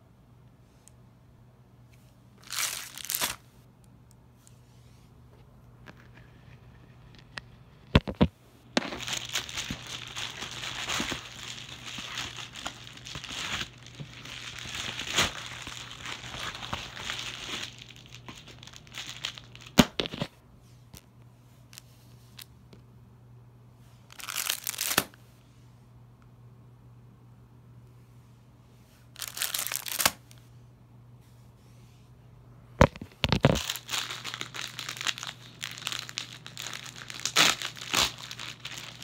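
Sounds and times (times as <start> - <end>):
plastic crinkling and tearing: 2.4 - 3.4, 8.8 - 20.3, 24.1 - 25.2, 29.2 - 30.4, 32.8 - 39.0.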